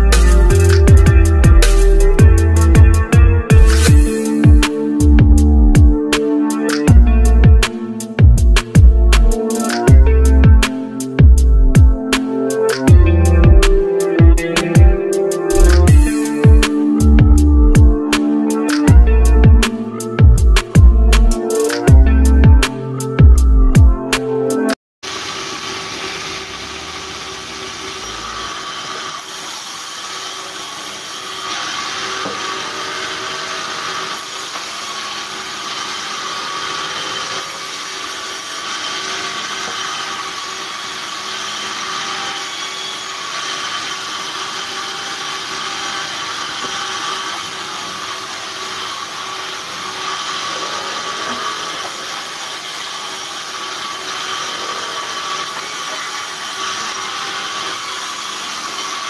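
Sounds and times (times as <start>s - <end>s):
band saw hum and whine: 0.0s - 59.0s
saw blade rasping through wood: 27.4s - 59.0s.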